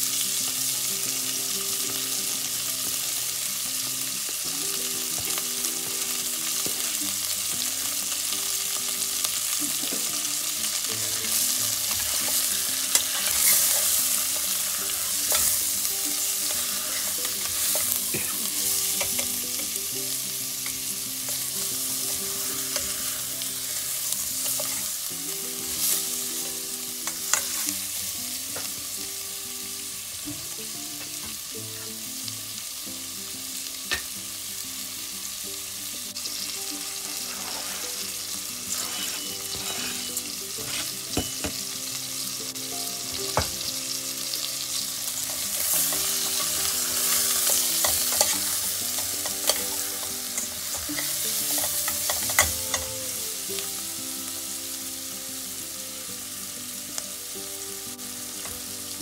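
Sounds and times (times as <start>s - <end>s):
chicken sizzling in a pot: 0.0s - 59.0s
spatula scraping a metal pot: 37.1s - 41.0s.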